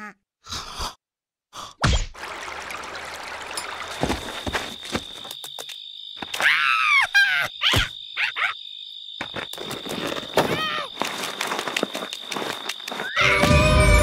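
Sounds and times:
fountain water splashing: 2.2 - 4.0
insect trill: 3.2 - 14.0.

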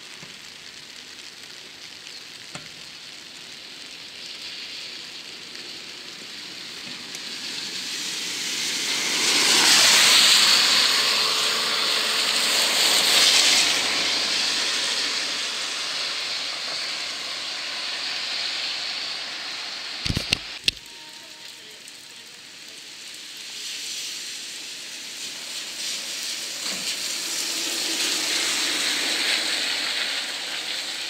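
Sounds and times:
rain hissing: 0.0 - 31.0
vehicle tyres hissing on wet road: 0.0 - 31.0.

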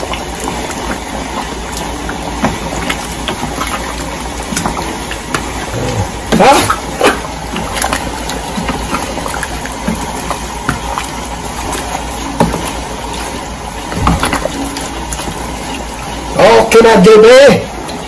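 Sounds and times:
stew bubbling in a pan: 0.0 - 18.0.

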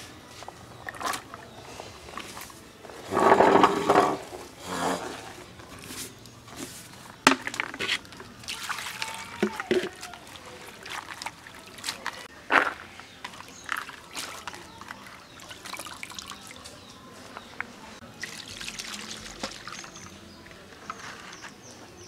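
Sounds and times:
stalks tipped into plastic bowl: 7.3 - 8.0.

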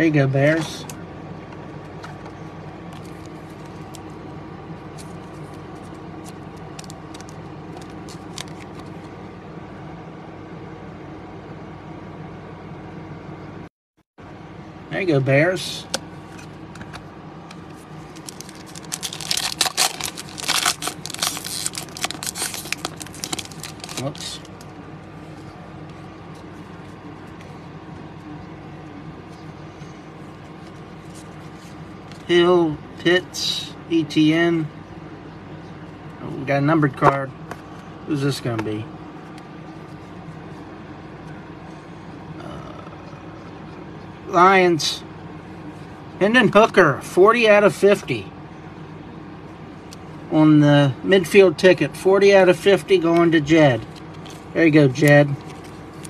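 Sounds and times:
electrical hum: 0.0 - 56.0
trading cards rustling: 2.9 - 4.2, 4.9 - 9.2, 16.2 - 27.7.

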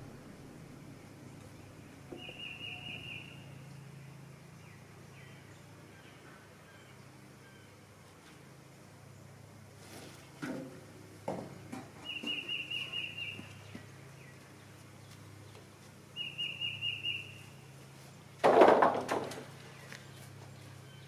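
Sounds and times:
songbird chirping: 0.8 - 8.4, 11.6 - 18.3, 19.6 - 21.0
wooden board clattering down: 18.4 - 19.5.

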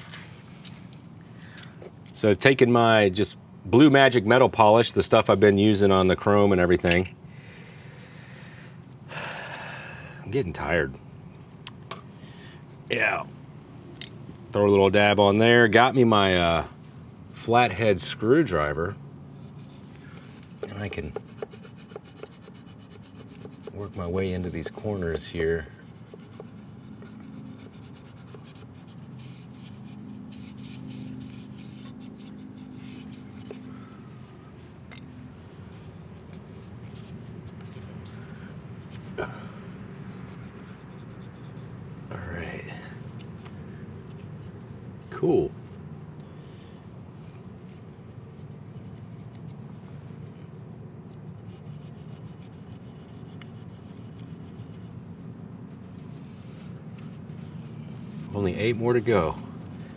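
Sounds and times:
steady low hum: 0.0 - 59.9
towel rubbing on chrome: 19.3 - 45.4, 46.4 - 59.9.

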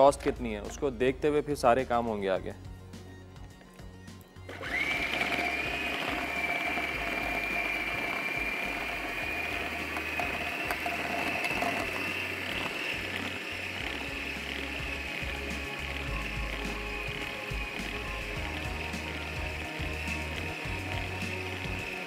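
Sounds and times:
electric food chopper whining: 4.5 - 22.0.

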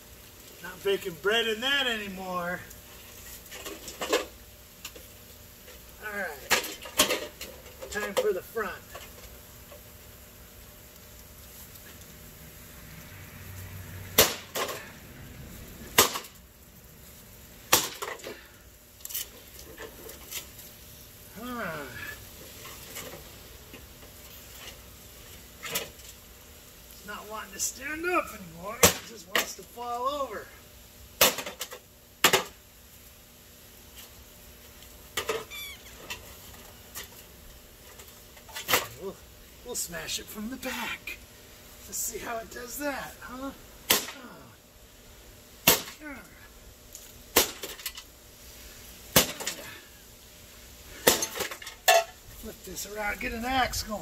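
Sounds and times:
axe striking sheet metal: 14.2 - 14.8, 16.0 - 16.3, 17.7 - 18.2, 31.2 - 31.6, 43.9 - 44.2, 45.6 - 46.0, 47.4 - 47.8, 49.1 - 49.6
axe smashing into casing: 16.0 - 16.3, 17.7 - 18.3, 43.9 - 44.2, 45.7 - 46.0, 47.4 - 47.9, 49.2 - 49.7, 51.0 - 52.1
high chirping squeak: 35.5 - 36.0
clatter of breaking parts: 51.0 - 52.2.

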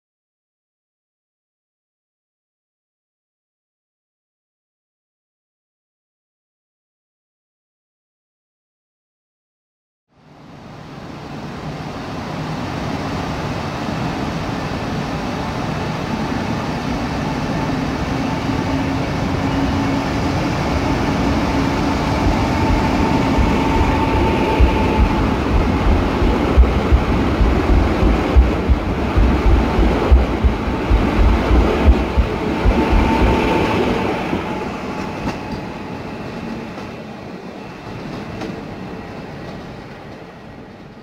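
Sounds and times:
electric train passing: 10.2 - 41.0.

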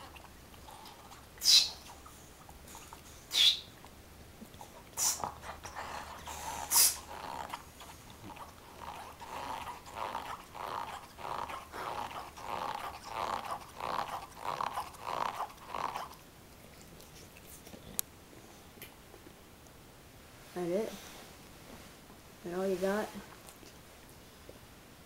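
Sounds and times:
dog grunting breaths: 4.4 - 16.2.

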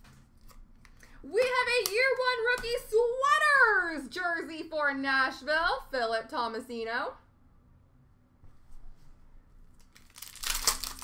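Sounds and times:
trading cards rustling: 9.8 - 11.0.

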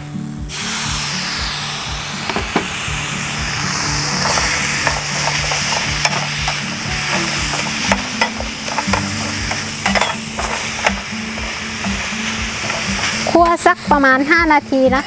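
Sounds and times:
vegetables sizzling in a pan: 0.5 - 15.0
metal spatula scraping a pan: 4.2 - 13.6.

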